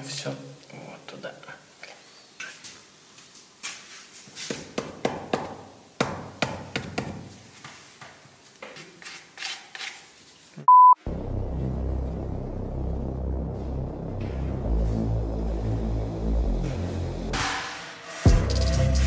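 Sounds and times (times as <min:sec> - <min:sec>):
short loud beep: 0:10.7 - 0:11.0
background music with throbbing bass: 0:11.1 - 0:17.6, 0:18.2 - 0:19.0.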